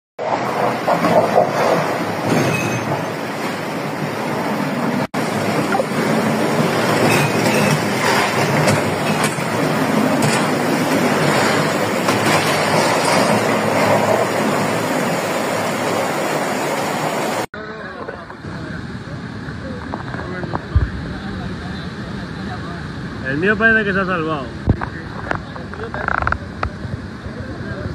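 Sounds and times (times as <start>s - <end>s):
floodwater rushing: 0.2s - 17.5s.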